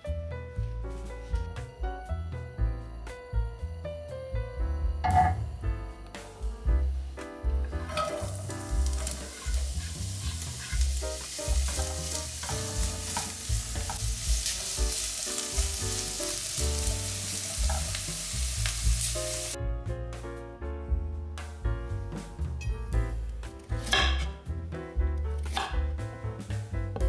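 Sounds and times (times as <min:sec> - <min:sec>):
background music: 0:00.0 - 0:27.0
vegetables sizzling in oil: 0:07.9 - 0:19.6.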